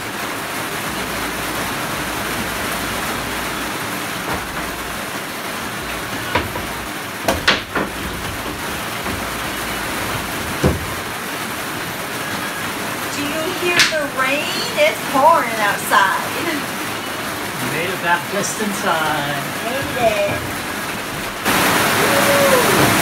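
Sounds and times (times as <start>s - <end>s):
rain on a bus: 0.0s - 23.0s
wooden knocks of plywood sheets: 4.0s - 11.3s, 13.7s - 14.0s, 19.0s - 21.6s.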